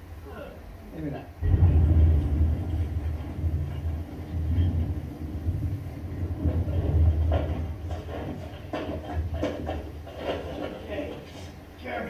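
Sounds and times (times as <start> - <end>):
vehicle rumble through tv speakers: 1.4 - 10.6.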